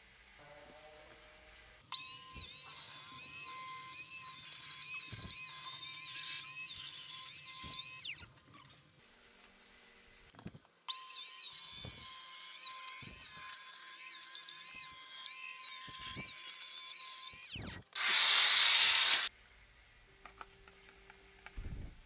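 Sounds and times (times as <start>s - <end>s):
trim router whining: 11.0s - 19.3s.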